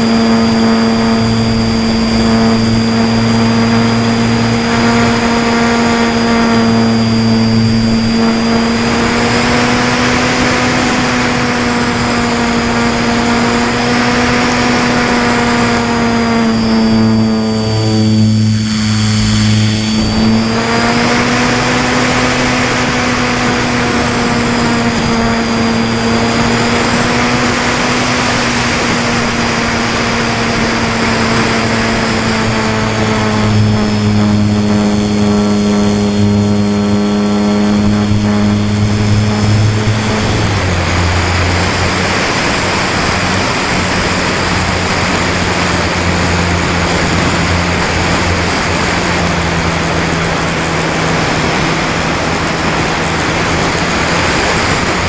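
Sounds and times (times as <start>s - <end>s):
model plane motor and propeller: 0.0s - 55.0s.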